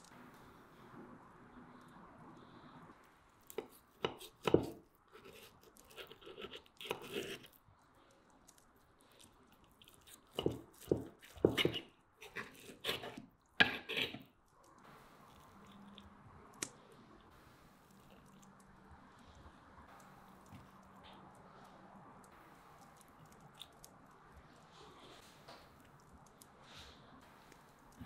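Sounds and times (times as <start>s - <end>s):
knife and fork cutting steak: 4.0s - 7.5s, 9.9s - 14.2s.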